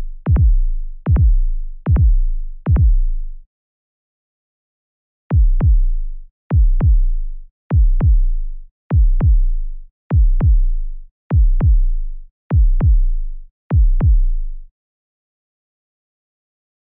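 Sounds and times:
deep electronic bass-drum thumps: 0.0s - 3.2s, 5.3s - 14.4s.

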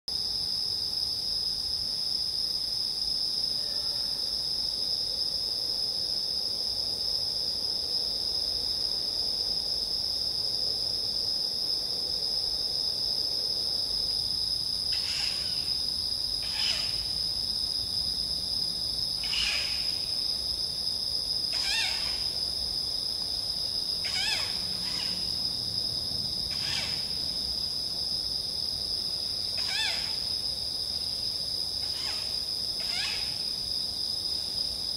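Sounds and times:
crickets chirping: 0.1s - 34.9s
animal giving harsh calls: 21.5s - 22.2s, 24.0s - 25.2s.

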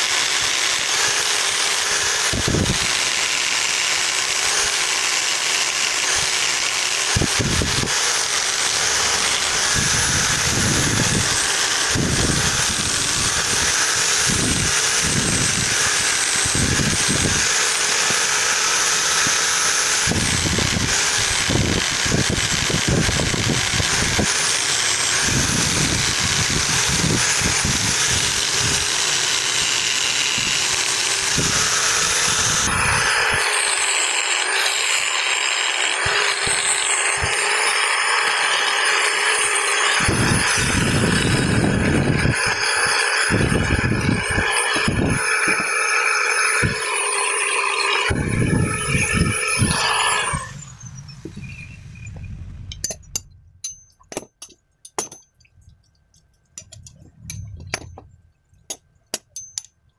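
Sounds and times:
angle grinder grinding steel: 0.0s - 55.2s.

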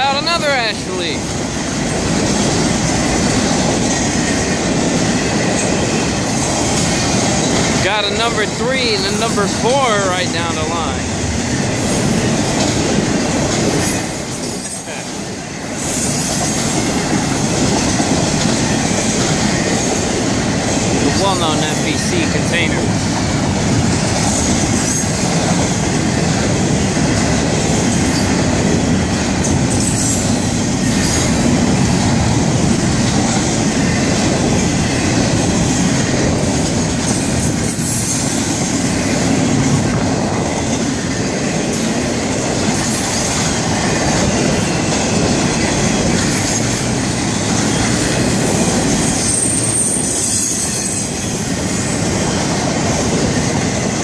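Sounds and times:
steel wheels on rails: 0.0s - 54.0s
high wheel squeal: 29.7s - 31.5s, 46.3s - 52.0s.

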